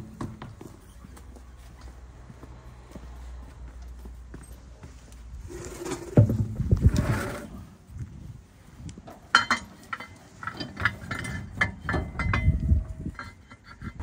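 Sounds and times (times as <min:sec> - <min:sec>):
metal clinks and knocks: 0:09.0 - 0:14.0.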